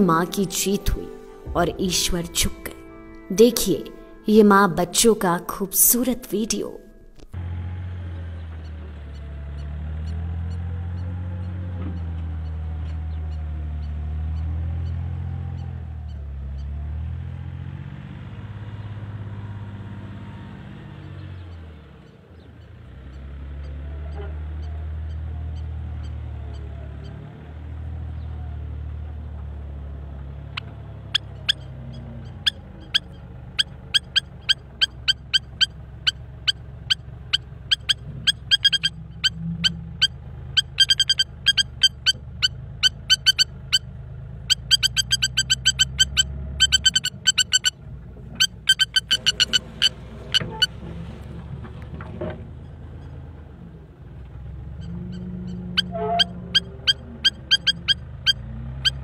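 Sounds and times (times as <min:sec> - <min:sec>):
heavy machine engine rumbling: 0:00.0 - 0:59.0
lapwing alarm calls: 0:30.5 - 0:43.8, 0:44.5 - 0:47.8, 0:48.4 - 0:50.8, 0:54.8 - 0:59.0.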